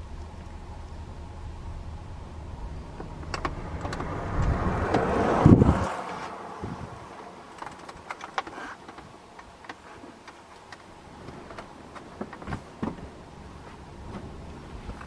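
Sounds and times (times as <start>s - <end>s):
outdoor background noise: 0.0s - 15.0s
faint irregular clicks and ticks: 7.1s - 13.0s.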